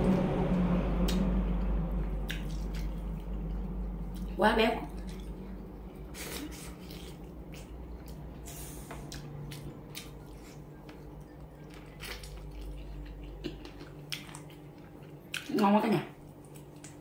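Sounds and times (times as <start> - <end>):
chewing and sucking meat: 2.2 - 15.5.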